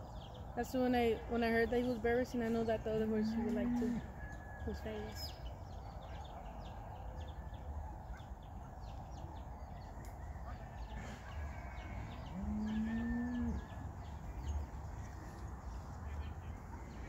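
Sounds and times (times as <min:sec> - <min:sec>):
cow mooing: 0:03.2 - 0:04.1, 0:12.2 - 0:13.7.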